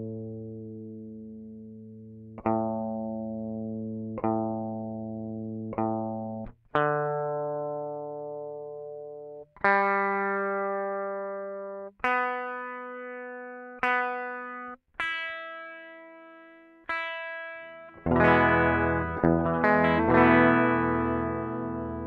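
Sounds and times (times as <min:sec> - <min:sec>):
electric guitar chords strummed: 0:02.4 - 0:22.0
electric guitar single strings picked: 0:16.9 - 0:22.0.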